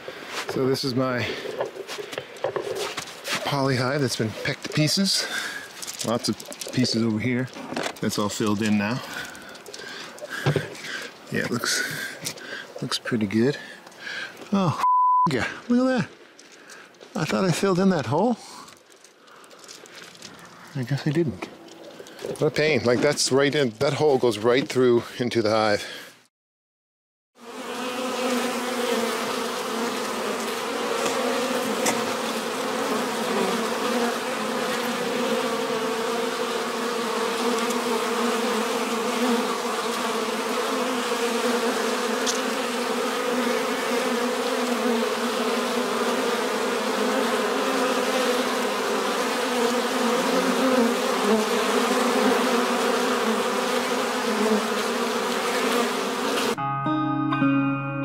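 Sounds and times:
honeybees buzzing: 0.0 - 12.8, 27.4 - 56.6.

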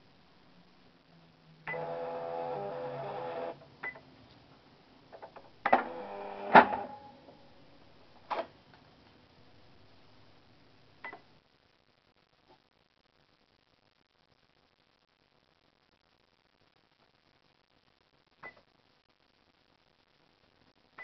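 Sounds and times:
cash register mechanical hum: 1.7 - 3.6, 5.6 - 7.1
cash register clicks and knocks: 5.7 - 6.9.

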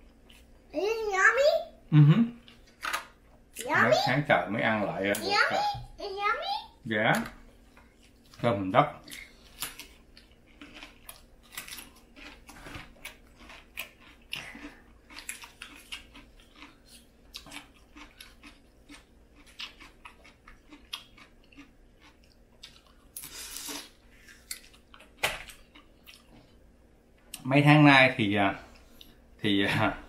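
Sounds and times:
person chewing and crunching: 7.7 - 26.6.

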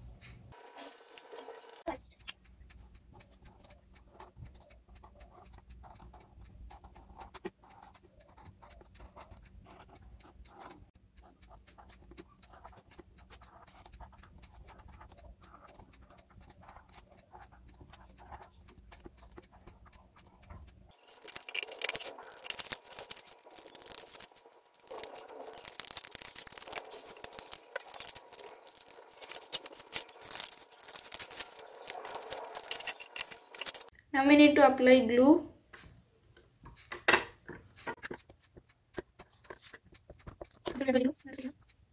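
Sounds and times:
scissors cutting paper: 0.5 - 1.9, 3.5 - 33.9
marker pen scratching on paper: 3.1 - 33.9, 37.5 - 41.5.

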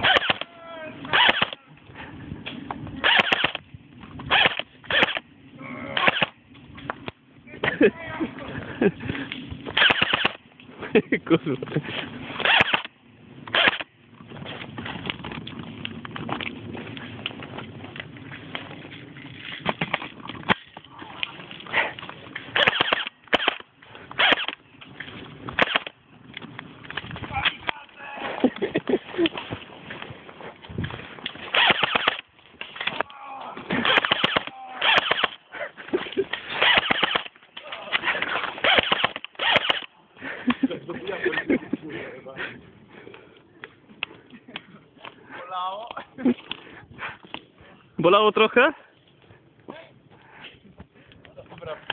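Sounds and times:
airsoft gun firing bursts: 0.0 - 0.4, 1.1 - 1.6, 3.0 - 3.6, 4.3 - 5.2, 6.0 - 6.4, 9.8 - 10.4, 12.4 - 12.9, 13.5 - 13.9, 22.5 - 23.6, 24.2 - 24.6, 25.6 - 26.0, 31.5 - 32.3, 33.8 - 35.4, 36.6 - 37.4, 38.6 - 39.9
crunching movement on dry forest floor: 7.8 - 45.5.

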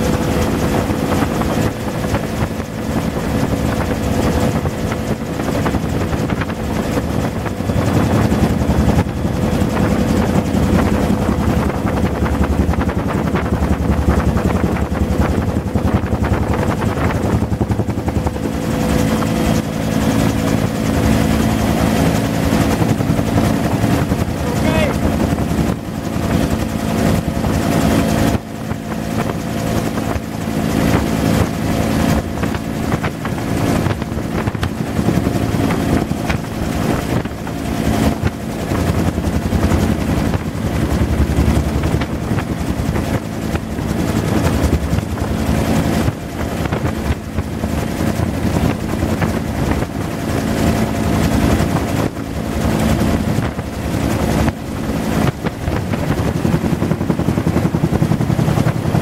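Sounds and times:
helicopter rotor beat: 0.0 - 59.0
turbine whine: 0.0 - 59.0
steady tones: 38.4 - 47.3.

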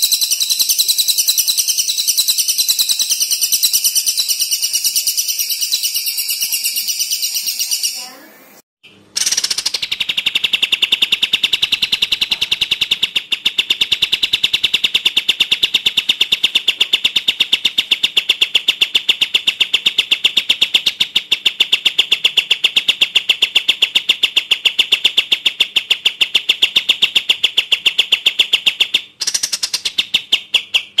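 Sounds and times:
songbird repeating sharp notes: 0.0 - 8.3.

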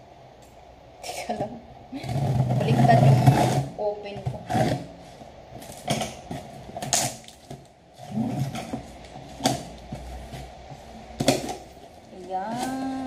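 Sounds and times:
tape and cardboard crinkling: 5.5 - 13.0.

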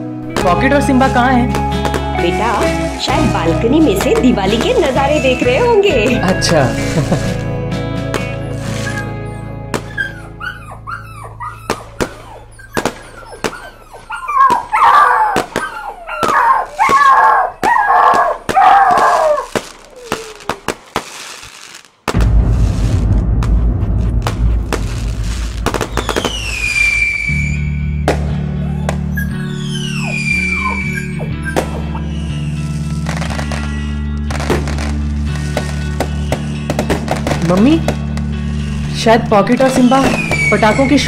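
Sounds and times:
firecrackers banging: 0.0 - 9.1, 9.7 - 10.0, 11.7 - 41.0
background music: 0.0 - 19.7, 22.1 - 41.0
dog whining and howling: 8.4 - 20.8, 26.0 - 34.1, 39.7 - 41.0
falling whistle: 25.8 - 34.1, 39.6 - 41.0.

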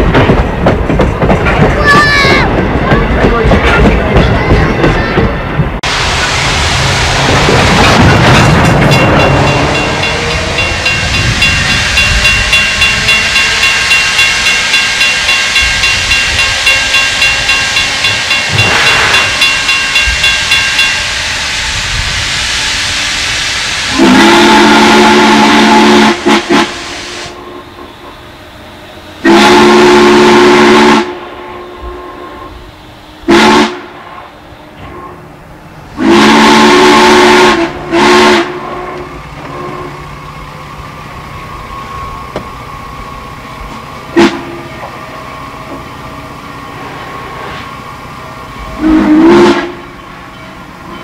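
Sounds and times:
steam locomotive exhaust chuffs: 0.0 - 51.0
hissing steam: 5.8 - 51.0
steam whistle blowing: 22.6 - 35.2, 36.0 - 40.0, 44.1 - 44.7, 48.7 - 50.0.

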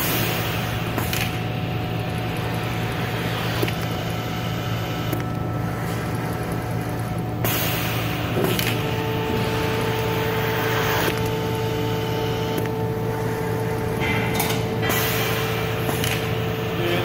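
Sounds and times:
machine hum: 0.0 - 17.0
steady whine: 0.0 - 17.0
hissing bursts of air: 7.4 - 8.6, 14.8 - 16.7.

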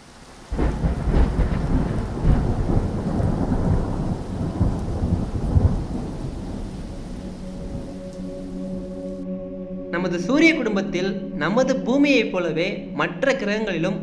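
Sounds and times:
heavy rain: 0.0 - 9.3
rolling thunder: 0.3 - 9.2.

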